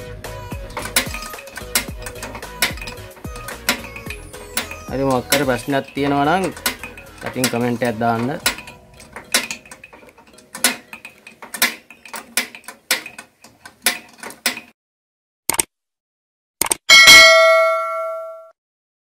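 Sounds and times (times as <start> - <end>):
metal clicks of tools on engine part: 0.5 - 14.7
bell chime sound effect: 16.9 - 18.5.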